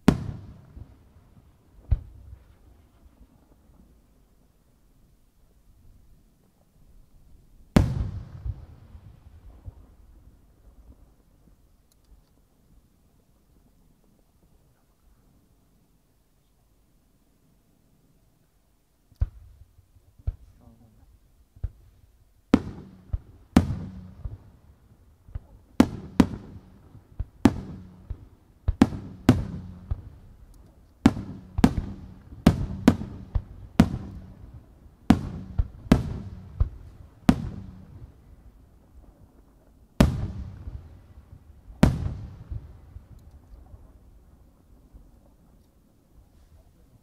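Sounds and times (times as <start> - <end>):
firework shells booming: 0.0 - 2.4, 25.3 - 30.3, 31.0 - 38.4, 40.0 - 43.2.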